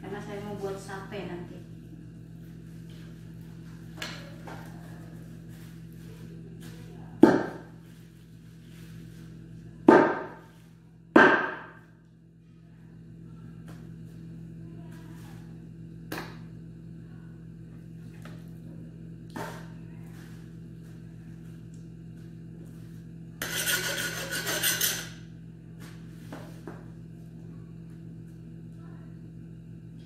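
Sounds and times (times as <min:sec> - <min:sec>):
knocks on metal tray: 0:07.2 - 0:07.6.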